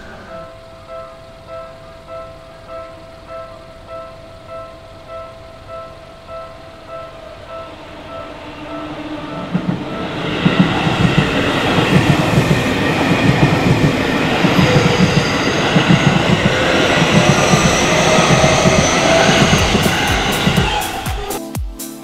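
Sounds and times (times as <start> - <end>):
level crossing warning bell: 0.0 - 21.4
train wheels clattering over rail joints: 8.6 - 21.3.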